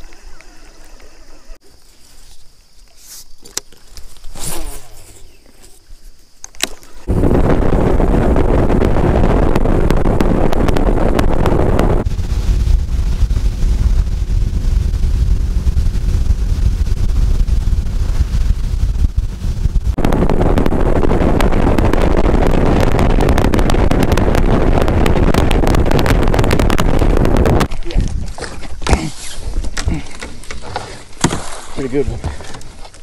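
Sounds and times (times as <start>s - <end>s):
water noise: 0.0s - 1.7s, 6.6s - 33.0s
wind rush over microphone: 7.0s - 28.6s.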